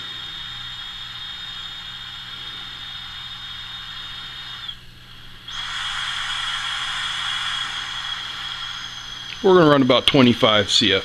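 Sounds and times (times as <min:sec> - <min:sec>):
gas hissing: 0:00.0 - 0:11.0
high whistle: 0:05.5 - 0:10.0.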